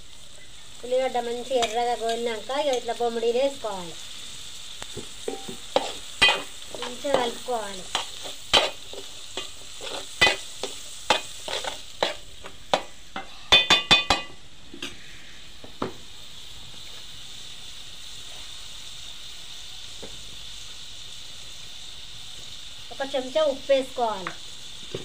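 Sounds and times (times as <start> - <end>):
fish and onions frying in oil: 0.0 - 25.0.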